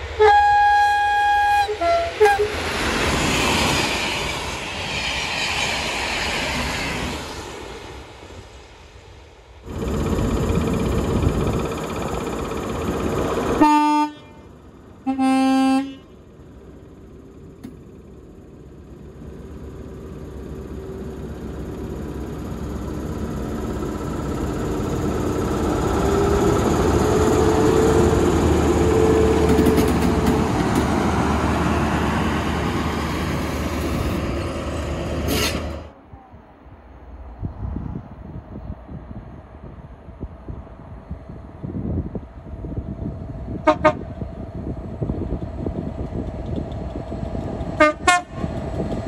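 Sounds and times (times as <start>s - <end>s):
diesel train engine running: 0.0s - 8.7s, 9.5s - 49.0s
two-tone train horn: 0.1s - 2.6s, 13.6s - 16.2s, 43.6s - 44.1s, 47.8s - 48.5s.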